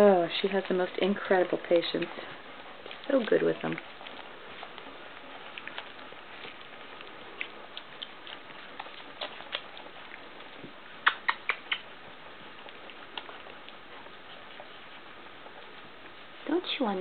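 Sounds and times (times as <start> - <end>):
puppies mouthing small clicks: 1.9 - 16.2
sharp clicks: 11.0 - 12.0.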